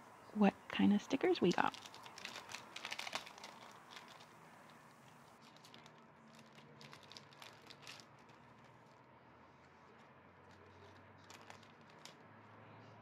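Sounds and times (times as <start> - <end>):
plastic sleeve crinkling: 1.4 - 9.0, 9.9 - 12.2.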